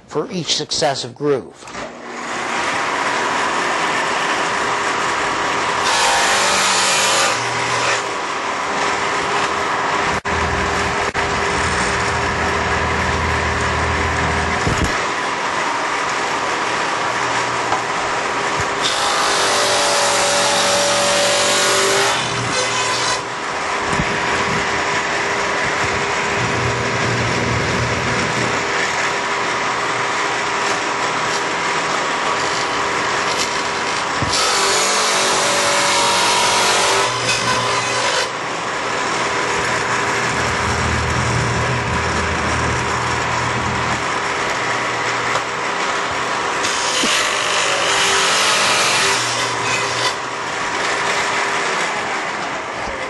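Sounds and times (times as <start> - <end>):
table saw motor running: 1.8 - 52.7
saw blade cutting wood: 5.7 - 8.2, 18.8 - 23.3, 30.6 - 38.4, 46.6 - 50.2.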